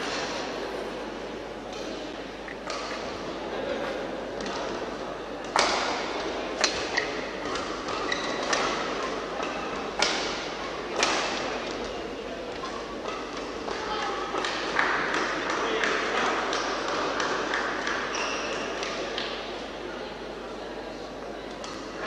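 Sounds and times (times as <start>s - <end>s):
murmur of spectators: 0.0s - 22.0s
rackets striking shuttlecock: 1.7s - 3.3s, 5.4s - 19.6s.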